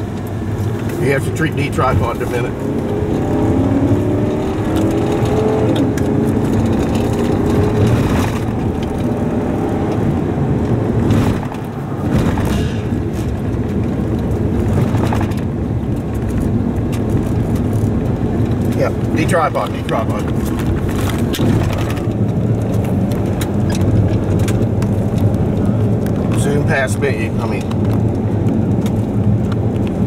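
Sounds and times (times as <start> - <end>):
tyres and engine rumble: 0.0 - 30.0
sharp knocks from road: 11.0 - 13.4.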